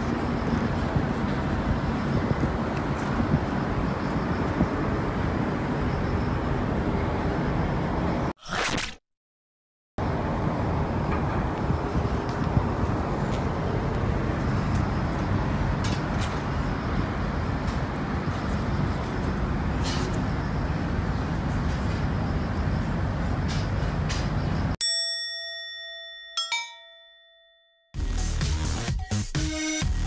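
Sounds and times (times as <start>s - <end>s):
low outdoor background noise: 10.0s - 24.8s
bell-like chime: 24.8s - 27.9s
music: 28.0s - 30.0s.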